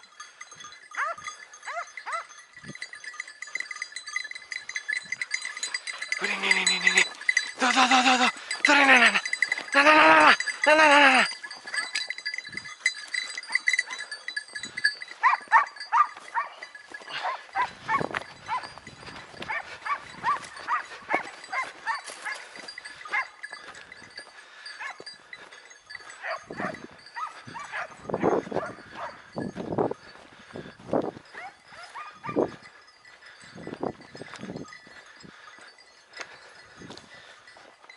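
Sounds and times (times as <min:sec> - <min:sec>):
hounds yelping and baying: 0:00.0 - 0:37.7
faint bells ringing: 0:00.0 - 0:37.9.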